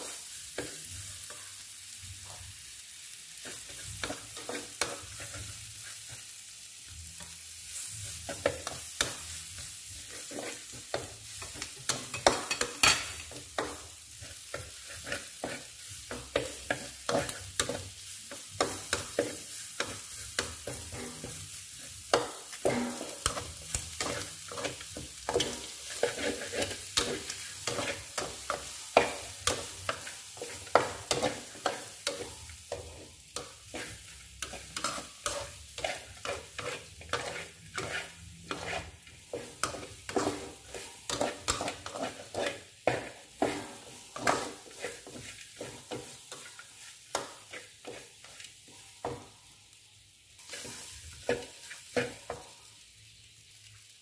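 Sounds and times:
chicken sizzling in wok: 0.0 - 54.0
metal spatula scraping wok: 9.9 - 17.9, 18.6 - 48.5, 50.4 - 52.4.

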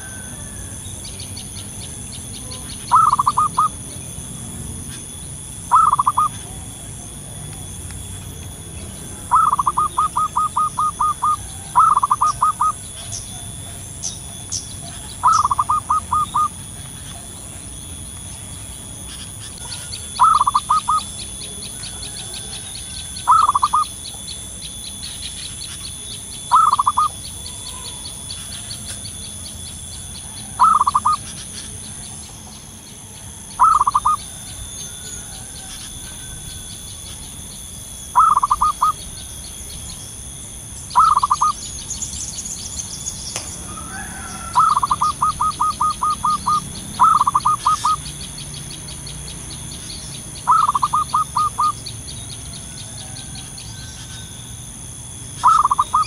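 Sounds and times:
dove cooing: 0.0 - 4.2, 4.8 - 7.4, 8.9 - 17.8, 19.2 - 24.3, 26.5 - 29.0, 30.0 - 32.2, 33.6 - 37.2, 38.1 - 39.1, 40.9 - 41.6, 43.4 - 48.2, 50.4 - 51.8, 55.4 - 56.0.

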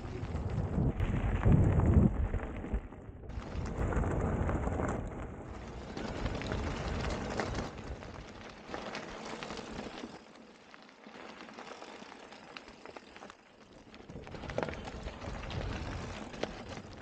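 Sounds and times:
wind rumbling on microphone: 0.0 - 8.5, 14.1 - 17.0
bike tyres crunching on stony track: 0.0 - 17.0.

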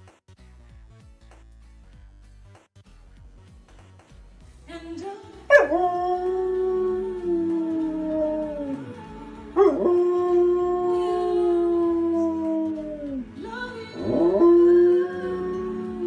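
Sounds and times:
music from a television: 0.0 - 16.0
dog howling: 5.5 - 13.3, 13.9 - 16.0.

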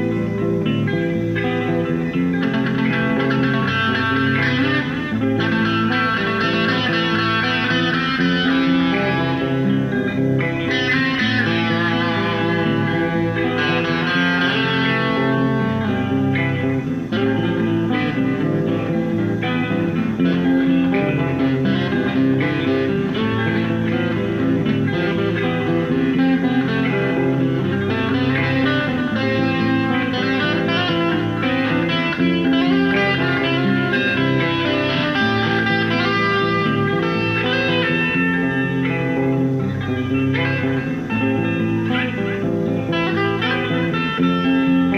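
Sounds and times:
electric guitar playing: 0.0 - 44.9.

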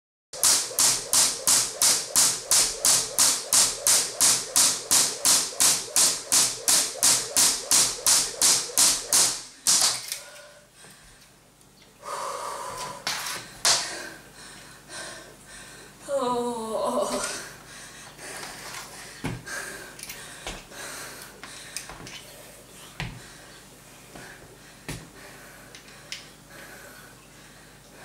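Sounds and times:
jump rope striking floor: 0.4 - 10.2, 13.6 - 13.9.

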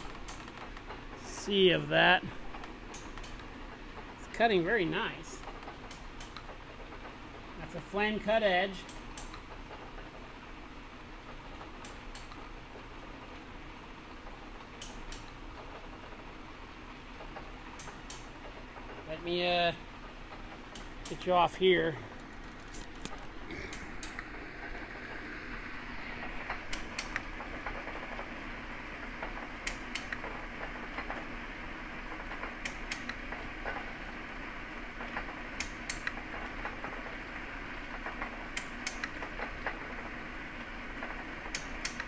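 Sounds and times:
sharp machine clicks: 0.0 - 3.5, 4.3 - 6.6, 7.7 - 9.8, 14.8 - 15.8, 17.3 - 19.8, 20.7 - 21.9, 23.7 - 24.8, 26.2 - 28.2, 29.2 - 31.2, 32.2 - 34.0, 35.1 - 37.1, 37.8 - 40.0, 41.0 - 42.0.

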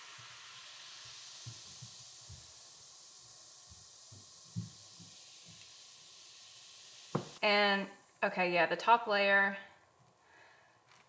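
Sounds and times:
fizzing of tiny bubbles: 0.0 - 8.2.

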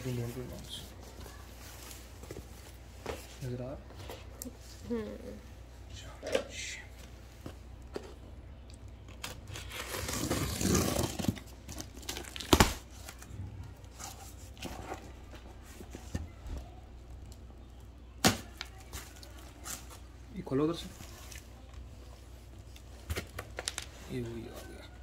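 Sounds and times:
box packaging tearing and crinkling: 9.1 - 15.1.

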